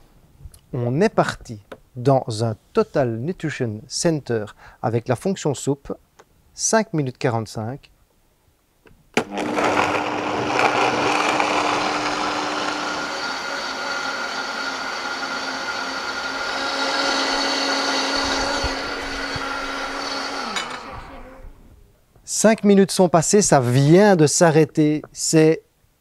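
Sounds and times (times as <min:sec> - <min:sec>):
blender motor running: 0:09.2 - 0:21.4.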